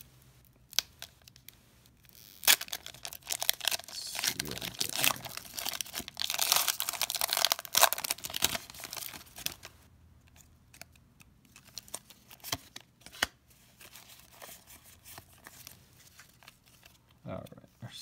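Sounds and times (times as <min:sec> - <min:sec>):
foil wrapper crinkling: 0:00.7 - 0:09.7
cards rustling: 0:02.6 - 0:09.7.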